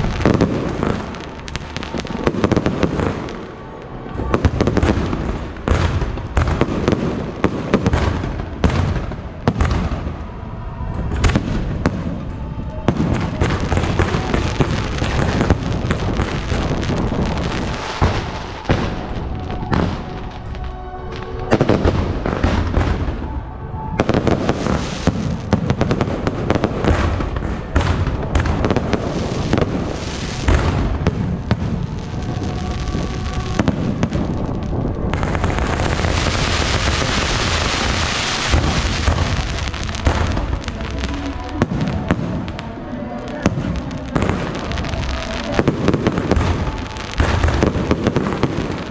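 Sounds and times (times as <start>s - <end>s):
fireworks bangs: 0.0s - 48.9s
fireworks crackling: 0.0s - 48.9s.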